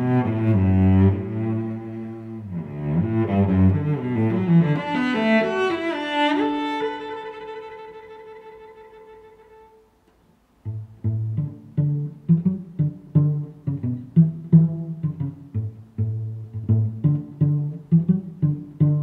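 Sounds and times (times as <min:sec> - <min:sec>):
bowed string music: 0:00.0 - 0:09.9, 0:10.6 - 0:19.0
plucked string notes: 0:10.6 - 0:19.0.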